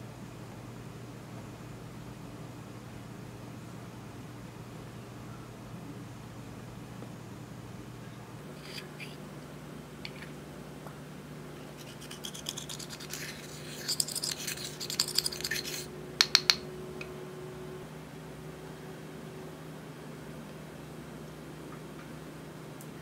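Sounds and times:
scratchy scraping: 0:08.5 - 0:09.2, 0:10.0 - 0:10.4, 0:11.6 - 0:16.6.

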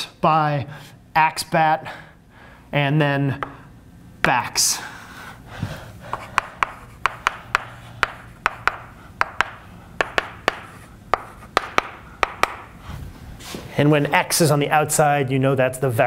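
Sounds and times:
chalk tapping and scraping on blackboard: 0:06.1 - 0:12.8.

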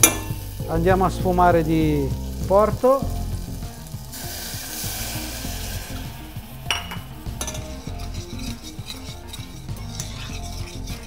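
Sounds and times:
wine sizzling and bubbling in pan: 0:00.0 - 0:11.0
utensil clinking against pan: 0:06.7 - 0:11.0.

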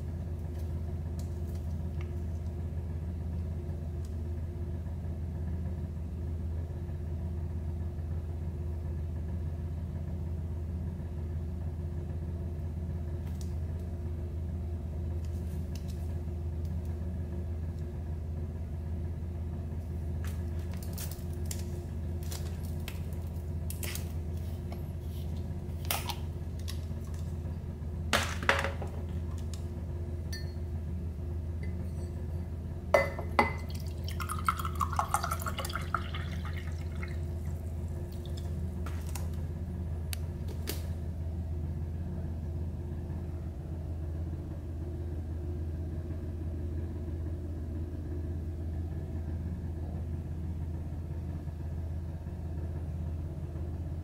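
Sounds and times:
steady low hum: 0:00.0 - 0:54.0
drink pouring into a glass: 0:33.0 - 0:38.6.

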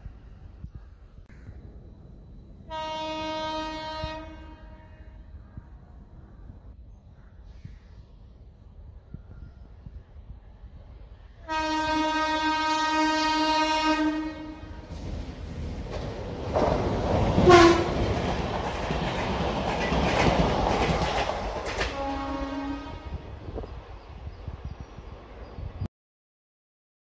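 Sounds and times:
train wheels rumbling on rail: 0:00.0 - 0:25.9
train horn blast: 0:02.7 - 0:05.4, 0:11.4 - 0:14.9, 0:17.4 - 0:18.1, 0:21.9 - 0:23.4.

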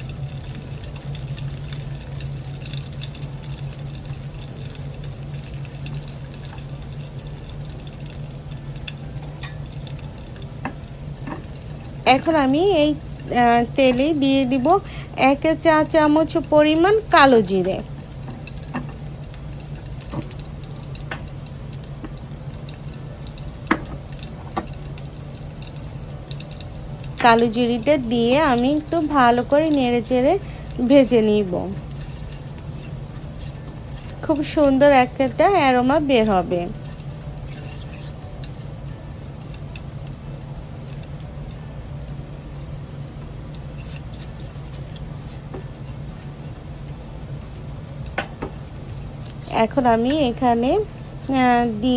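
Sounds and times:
hot oil crackling in a pan: 0:00.0 - 0:51.9
steady low hum: 0:00.0 - 0:51.9
sharp pops of frying oil: 0:10.6 - 0:11.6, 0:17.6 - 0:22.2, 0:23.6 - 0:25.1, 0:48.1 - 0:48.6
crackles and pops: 0:17.8 - 0:27.4, 0:31.4 - 0:42.4
spatula stirring: 0:28.2 - 0:41.4, 0:43.4 - 0:47.4.

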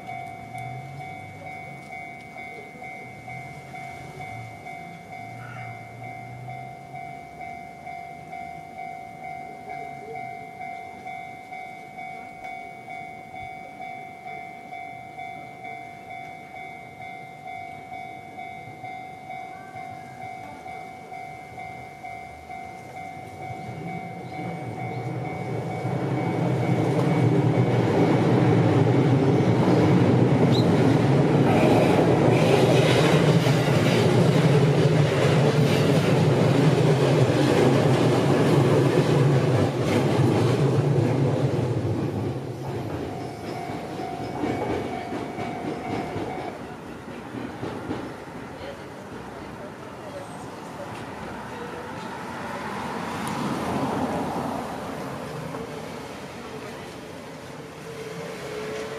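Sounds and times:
level-crossing bell dinging: 0:00.0 - 0:31.4, 0:40.4 - 0:47.1
electric train passing: 0:00.0 - 0:58.9.

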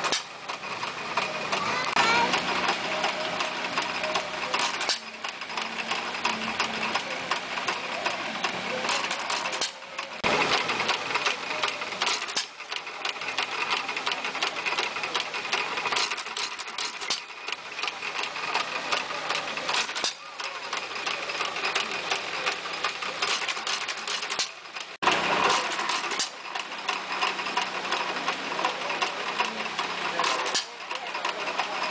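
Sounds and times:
hit-and-miss engine clicking: 0:00.0 - 0:31.9.

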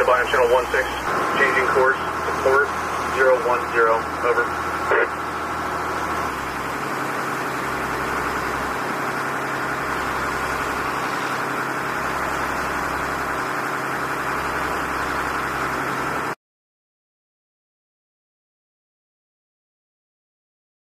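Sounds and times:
boat engine humming: 0:00.0 - 0:16.4.

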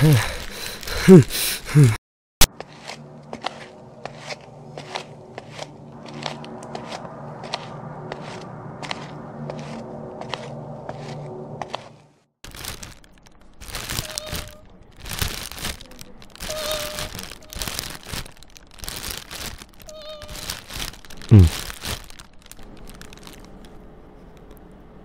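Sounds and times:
plastic packets crinkling: 0:12.4 - 0:24.6.

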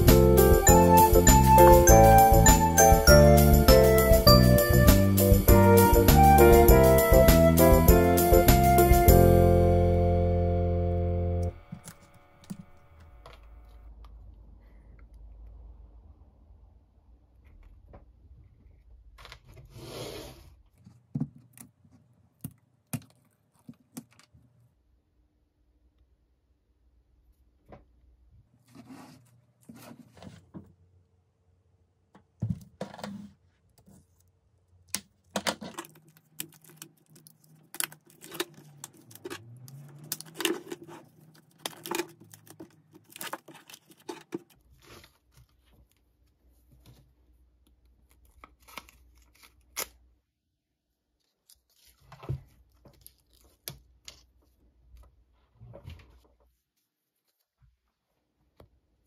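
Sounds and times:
plastic wrapping crinkling: 0:35.0 - 0:46.0.

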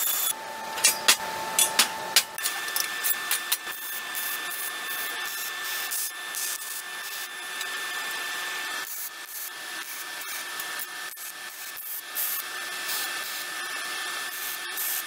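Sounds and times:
welder arc crackling and hissing: 0:01.8 - 0:15.0.

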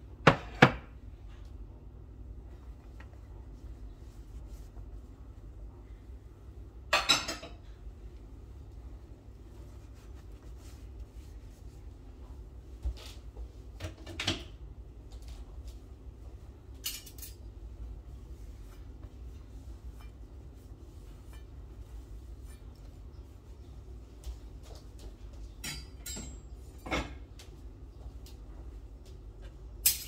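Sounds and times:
low steady hum: 0:00.0 - 0:30.0
cutlery clinking: 0:16.8 - 0:17.4.

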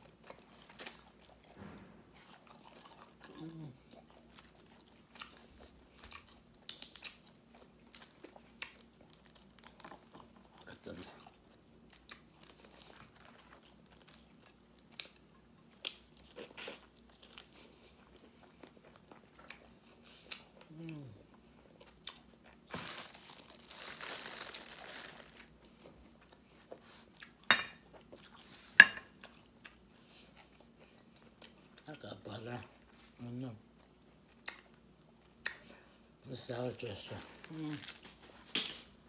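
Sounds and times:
person crunching food: 0:02.2 - 0:21.1, 0:21.8 - 0:26.4.

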